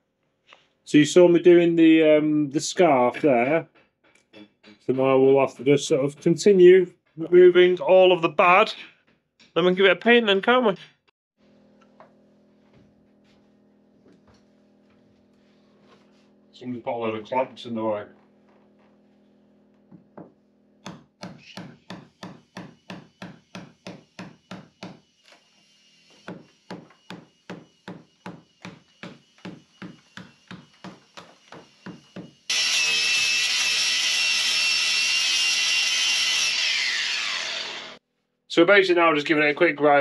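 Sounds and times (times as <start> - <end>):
hammer striking chisel: 19.9 - 25.1, 26.1 - 32.6
power grinder whining: 28.8 - 38.0.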